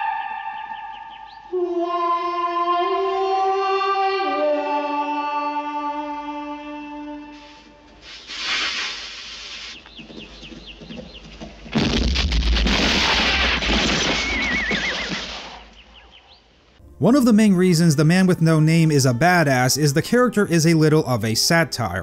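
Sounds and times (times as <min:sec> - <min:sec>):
cannon fuse hissing: 0:07.4 - 0:09.8, 0:12.7 - 0:14.5
cannon blast boom: 0:11.7 - 0:14.6
film score music: 0:16.0 - 0:22.0.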